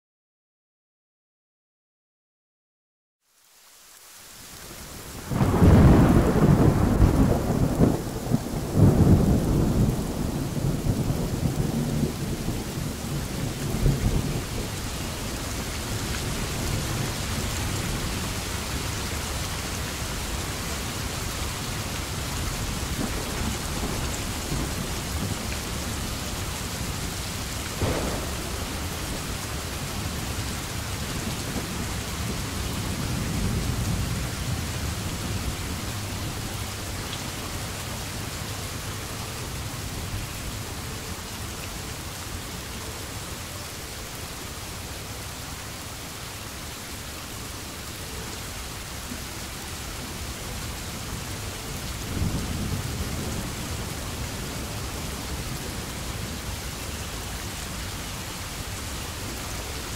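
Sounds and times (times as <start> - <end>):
steady rain: 3.2 - 59.9
thunder rumbling: 5.3 - 21.2, 21.8 - 36.4.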